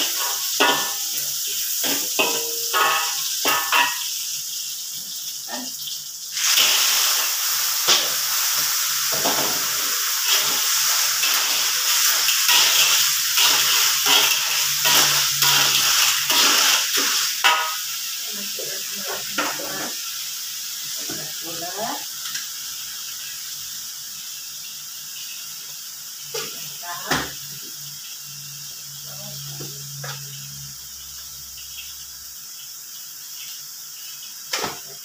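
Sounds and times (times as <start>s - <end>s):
metal spatula scraping and clinking: 0.0s - 4.0s, 10.3s - 17.8s
oil sizzling in a wok: 0.0s - 35.0s.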